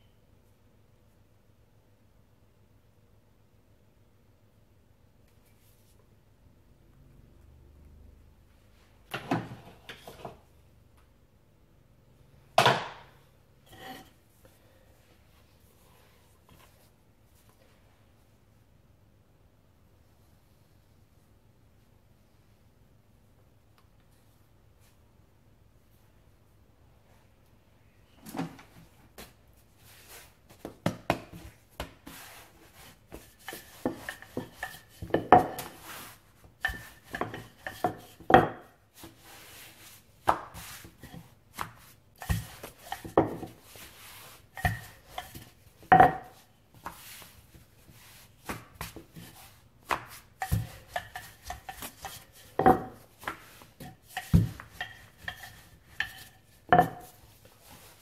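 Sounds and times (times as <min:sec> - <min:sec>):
rolling pin rubbing dough: 0:29.2 - 0:58.0
rolling pin knocking on worktop: 0:44.6 - 0:46.4.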